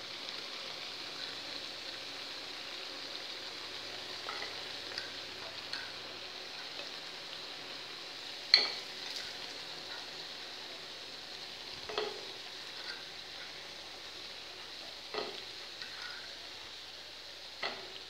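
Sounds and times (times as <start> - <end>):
pastries sizzling in hot oil: 0.0 - 18.0
fork clinking on pan: 8.5 - 8.8, 11.9 - 12.2, 15.1 - 16.2
fork tapping pan: 8.5 - 8.9, 11.9 - 13.0, 15.1 - 16.3, 17.6 - 18.0.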